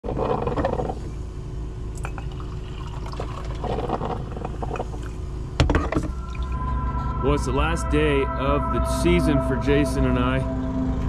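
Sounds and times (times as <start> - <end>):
low hum: 0.0 - 11.0
glass and mug clinking: 2.0 - 2.4
coffee pouring into mug: 2.0 - 5.0.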